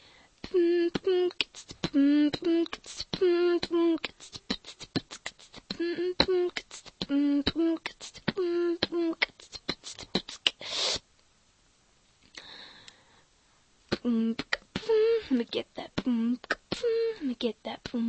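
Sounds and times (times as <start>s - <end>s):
hummed notes: 0.4s - 10.2s
person beatboxing: 0.5s - 11.0s, 13.9s - 15.0s, 15.8s - 16.9s
mouth hiss: 1.3s - 3.2s, 4.0s - 7.2s, 7.8s - 11.1s.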